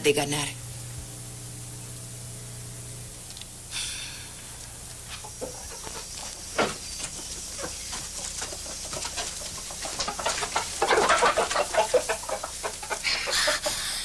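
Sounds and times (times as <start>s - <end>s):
chickens clucking: 5.1s - 14.0s.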